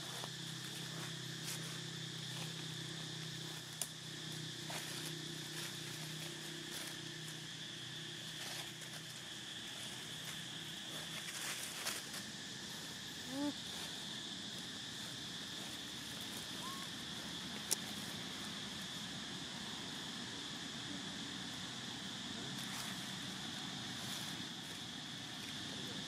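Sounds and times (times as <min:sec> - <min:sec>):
insects droning: 0:00.0 - 0:26.0
pitched animal call: 0:16.5 - 0:16.9.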